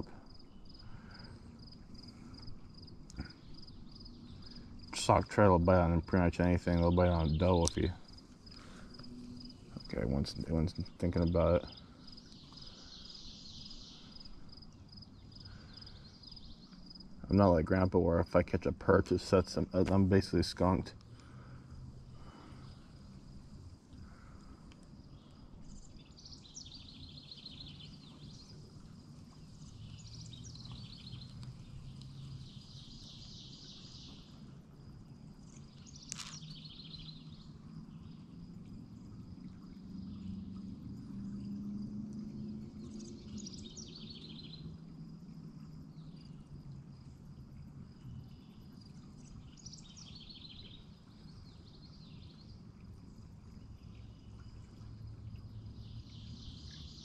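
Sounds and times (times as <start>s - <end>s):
songbird trilling: 0.0s - 16.7s, 35.8s - 37.4s
low outdoor rumble: 0.0s - 26.6s.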